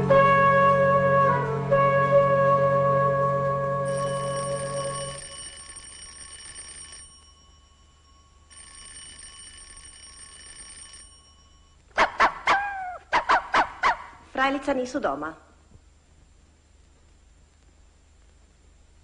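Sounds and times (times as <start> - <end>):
electric doorbell ringing: 3.9 - 11.8
dog barking: 12.0 - 14.2.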